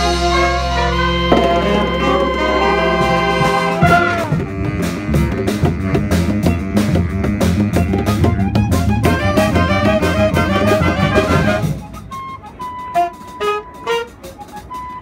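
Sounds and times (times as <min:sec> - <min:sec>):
jazz band horns playing: 0:00.0 - 0:15.0
drum and cymbal hits: 0:01.3 - 0:08.4.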